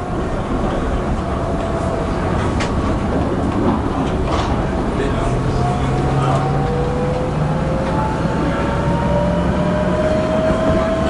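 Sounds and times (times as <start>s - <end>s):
tram rumbling on rails: 0.0s - 11.0s.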